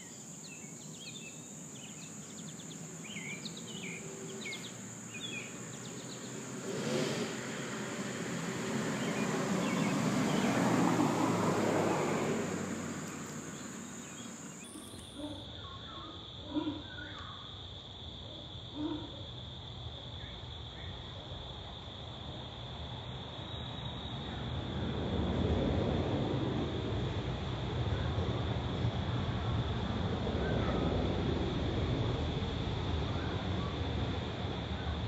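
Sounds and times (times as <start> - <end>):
bird chirps: 0.0 - 6.5, 9.0 - 10.6, 13.0 - 17.4
broad rushing noise: 2.8 - 14.6.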